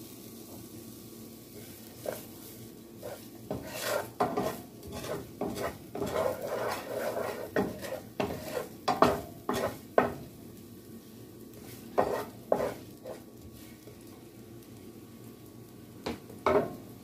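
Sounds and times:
wooden spatula scraping a pan: 0:01.6 - 0:10.2, 0:11.6 - 0:13.8.

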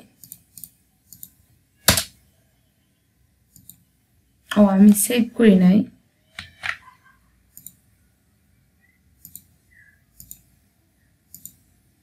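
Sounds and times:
computer mouse and keyboard clicks: 0:00.2 - 0:02.1, 0:03.5 - 0:03.8, 0:07.5 - 0:07.8, 0:09.2 - 0:10.5, 0:11.3 - 0:11.7.

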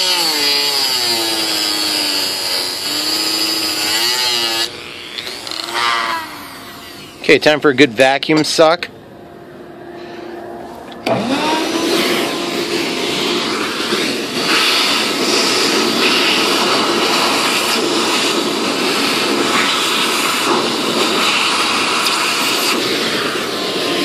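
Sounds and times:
shop vacuum running: 0:00.0 - 0:24.0
hose nozzle suction noise: 0:11.0 - 0:23.8.

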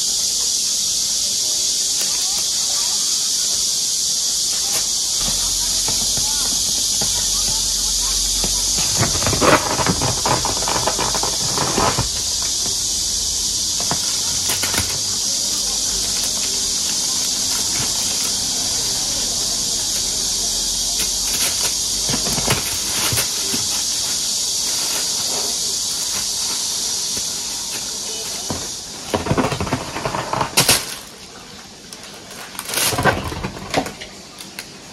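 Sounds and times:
steady high hiss: 0:00.0 - 0:33.3
plastic bag crinkling: 0:04.5 - 0:26.4.

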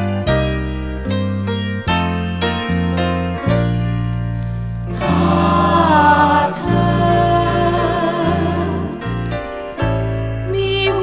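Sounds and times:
pop band with bass: 0:00.0 - 0:11.0
group singing in harmony: 0:04.9 - 0:09.7.

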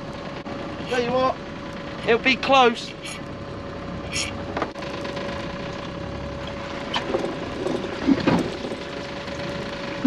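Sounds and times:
boat motor idling: 0:00.0 - 0:10.0
knocks and clatters of lobster pot: 0:07.0 - 0:08.8.

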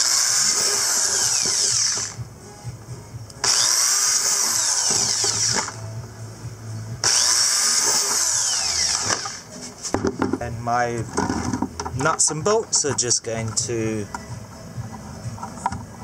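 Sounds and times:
electric drill boring plastic: 0:00.0 - 0:02.2, 0:03.4 - 0:05.8, 0:07.0 - 0:09.5.

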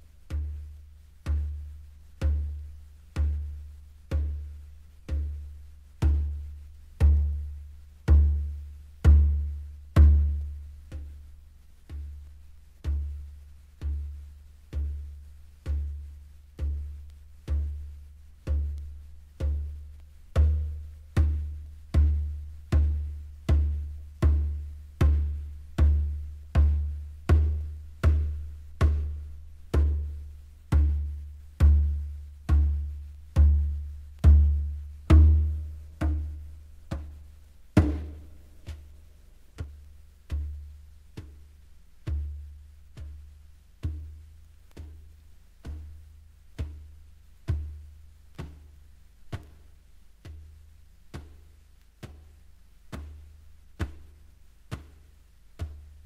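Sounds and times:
low drum booming: 0:15.7 - 0:40.6.

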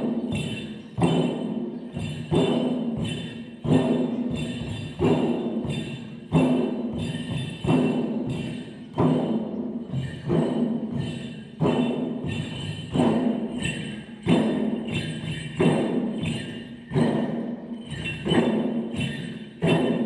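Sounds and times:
barrel drums beaten in slow rhythm: 0:00.0 - 0:20.0.

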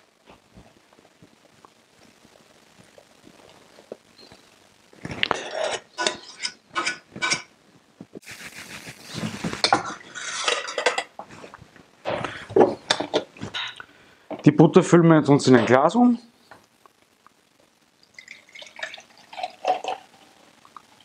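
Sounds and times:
metal spoon scraping saucepan: 0:05.4 - 0:07.5, 0:09.6 - 0:11.1
short hiss: 0:08.2 - 0:10.6.

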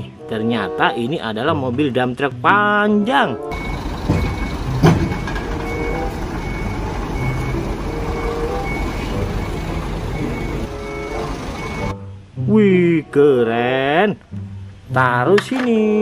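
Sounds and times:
high warning beeps: 0:03.5 - 0:12.0
diesel engine rumbling: 0:03.5 - 0:12.4
sharp knock: 0:04.1 - 0:05.5.

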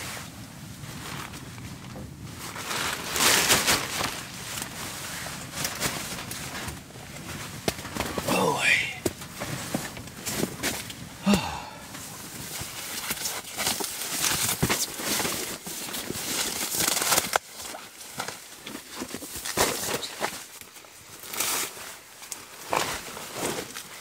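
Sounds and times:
foam pad rustling and crinkling: 0:00.0 - 0:24.0
person sighing: 0:08.2 - 0:09.1, 0:11.2 - 0:12.0.

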